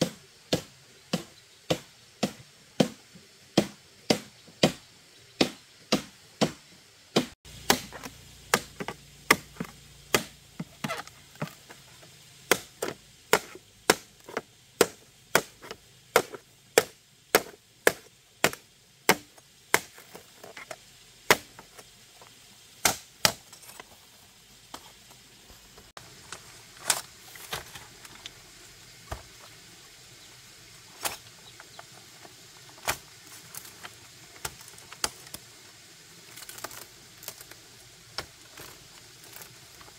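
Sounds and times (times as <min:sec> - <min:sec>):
tool striking wood: 0:07.2 - 0:11.6, 0:12.5 - 0:19.9.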